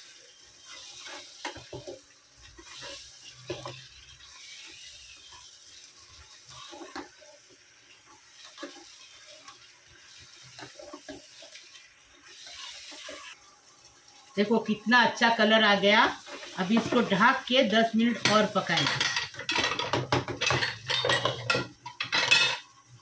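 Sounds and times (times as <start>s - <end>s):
food sizzling in a pot: 0.0s - 23.0s
spatula scraping a pot: 0.6s - 5.6s, 6.2s - 7.4s.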